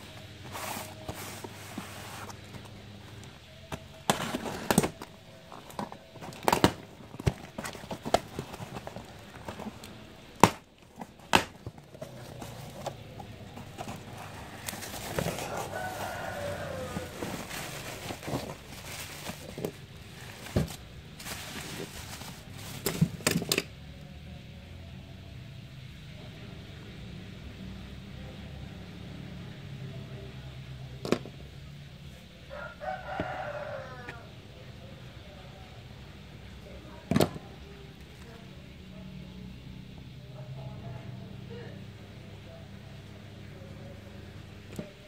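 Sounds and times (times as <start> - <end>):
cardboard knocks and scrapes: 0.4 - 2.6, 10.4 - 23.4
plastic toy figures rattling: 13.6 - 23.7.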